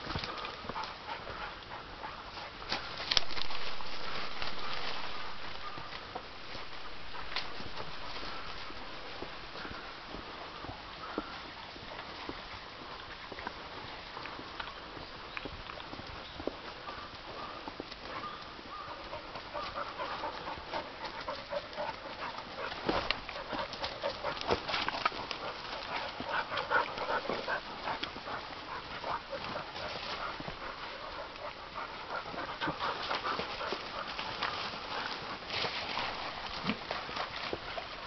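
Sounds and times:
dog panting: 0.3 - 2.6, 18.1 - 35.4
footsteps through leaf litter: 2.7 - 9.6, 33.1 - 37.8.

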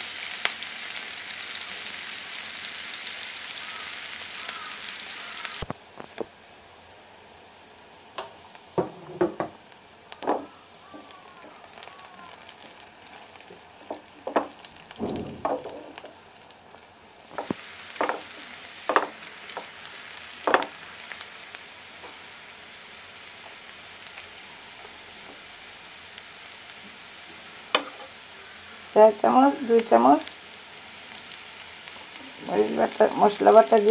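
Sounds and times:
onions sizzling in pan: 0.0 - 33.9.

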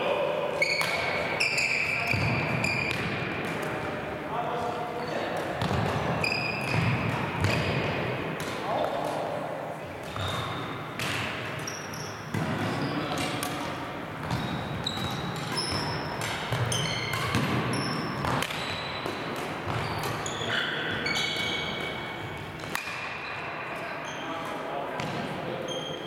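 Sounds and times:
shoes squeaking on floor: 0.6 - 3.0, 5.0 - 7.9, 8.6 - 9.1, 10.0 - 13.4, 14.2 - 24.4, 25.6 - 26.0
racket striking shuttlecock: 15.0 - 20.2, 22.6 - 23.1.

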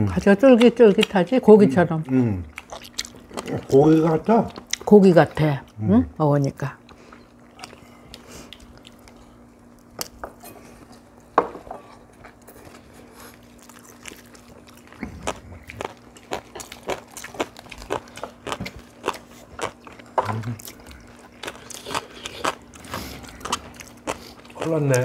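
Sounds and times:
faint steady hum: 0.0 - 25.0
chewing: 2.0 - 4.9, 6.8 - 11.3, 11.9 - 25.0.

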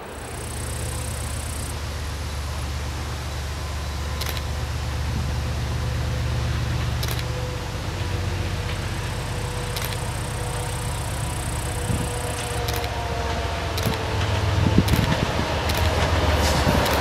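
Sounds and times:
locomotive low drone: 0.0 - 17.0
sharp clicks: 0.3 - 1.7, 4.2 - 4.5, 7.0 - 7.3, 9.6 - 14.1, 14.8 - 17.0.

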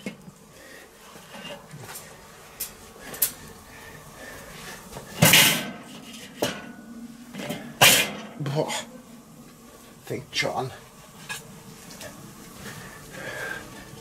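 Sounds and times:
metal grate clattering: 5.2 - 6.8, 7.4 - 8.4.

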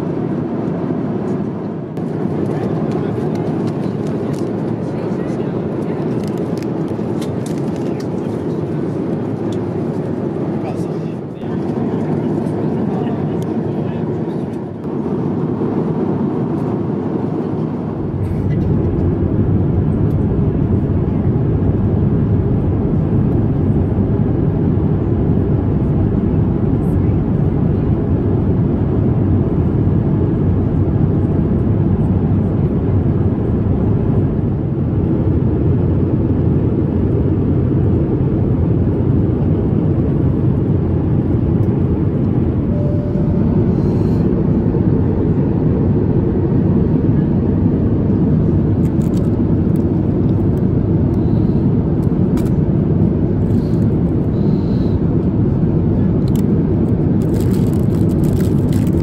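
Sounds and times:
airliner cabin airflow and engine drone: 0.0 - 59.0.

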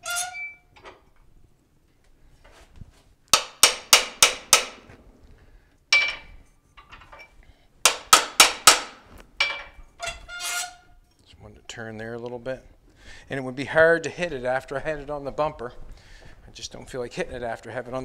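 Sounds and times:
hammer blows on metal: 3.4 - 5.0.

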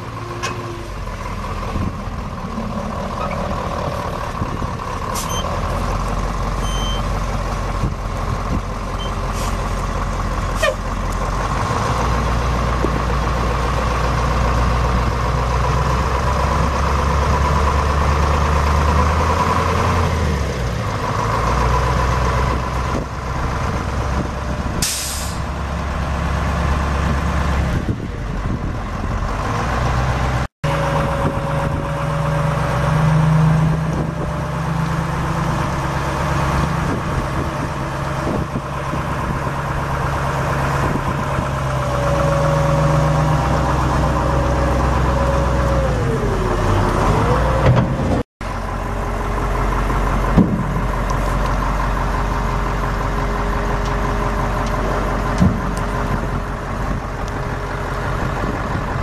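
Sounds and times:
diesel truck engine droning: 0.0 - 59.0
air brake hiss: 24.8 - 25.5.

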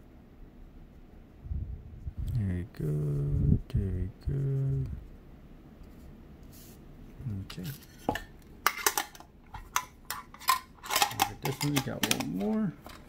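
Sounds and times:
cards and packaging clicking: 8.7 - 13.0.

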